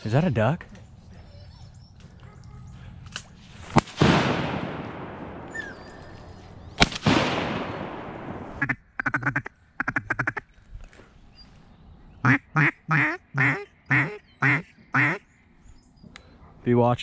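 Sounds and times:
shotgun shots with echo: 0:03.7 - 0:08.6
duck quacks: 0:08.6 - 0:10.4, 0:12.2 - 0:15.2.

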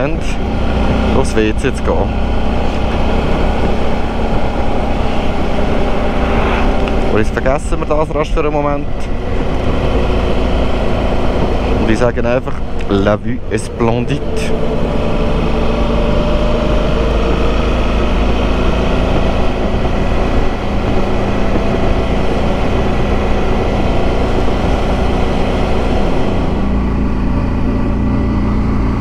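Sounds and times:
motorcycle engine running: 0:00.0 - 0:29.0
road noise: 0:00.0 - 0:29.0
wind noise: 0:02.1 - 0:28.2.

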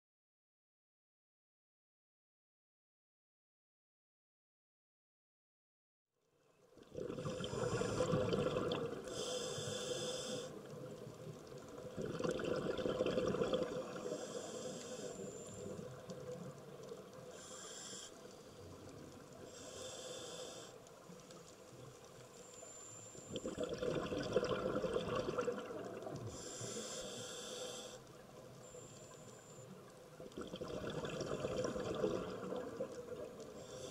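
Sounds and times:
bubbling exhaled air: 0:06.9 - 0:10.5, 0:11.8 - 0:16.0, 0:23.3 - 0:27.2, 0:30.3 - 0:33.9
hissing regulator inhalations: 0:07.3 - 0:10.8, 0:13.9 - 0:16.2, 0:17.1 - 0:21.4, 0:22.4 - 0:23.5, 0:26.3 - 0:29.8, 0:33.5 - 0:33.9.

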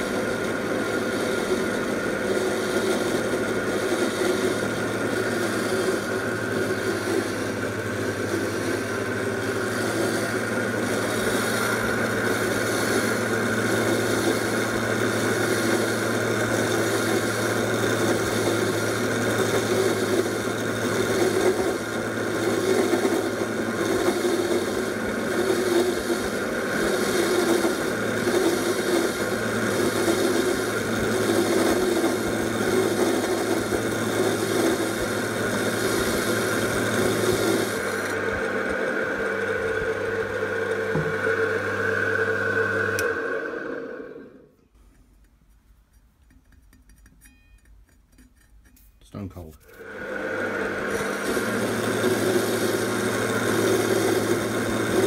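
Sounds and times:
chop saw cutting metal: 0:00.0 - 0:38.7, 0:49.6 - 0:55.0.

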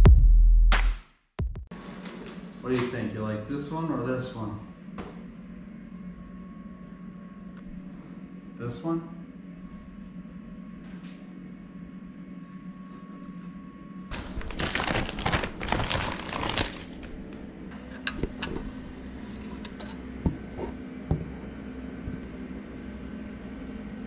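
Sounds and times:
loud crinkling and rattling: 0:14.1 - 0:17.4.

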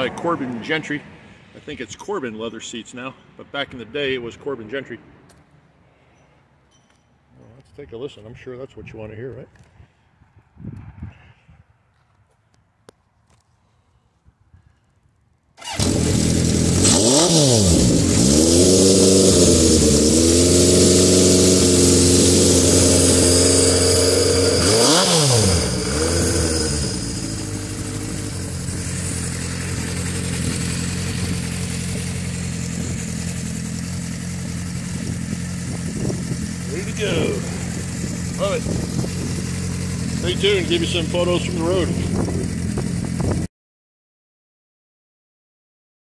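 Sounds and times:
motorcycle engine revving and idling: 0:15.6 - 0:43.5.

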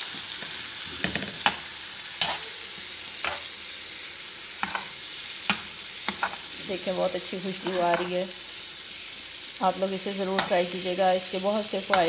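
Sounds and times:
flower buds sizzling in oil: 0:00.0 - 0:12.0
metal spoon scraping pan: 0:02.2 - 0:02.5, 0:07.6 - 0:08.2.

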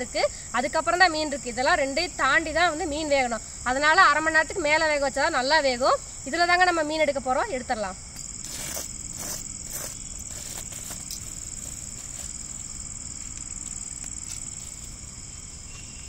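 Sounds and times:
crickets chirring: 0:00.0 - 0:16.0
metal tongs scraping ash: 0:08.2 - 0:15.0.

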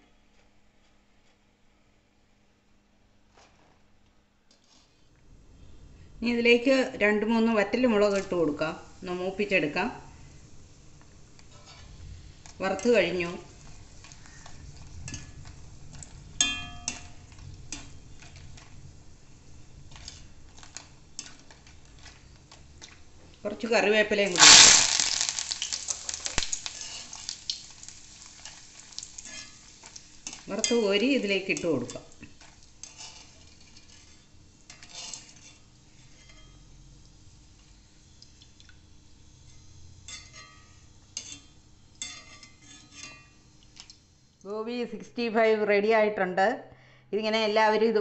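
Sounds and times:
chillies sizzling in oil: 0:06.3 - 0:44.5
wire strainer scraping metal pan: 0:11.4 - 0:18.8, 0:19.9 - 0:22.4, 0:24.2 - 0:36.6, 0:39.4 - 0:43.4.

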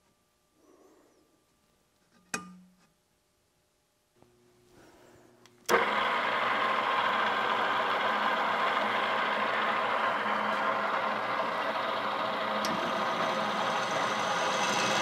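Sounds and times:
drill press running: 0:05.7 - 0:15.0.

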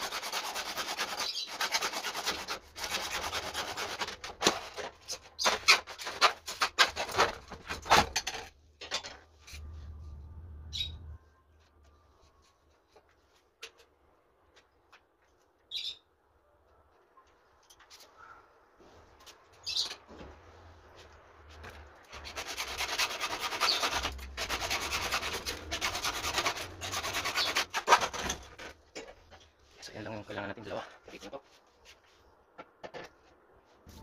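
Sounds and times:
hand saw cutting plastic pipe: 0:00.0 - 0:08.1, 0:22.1 - 0:28.7.

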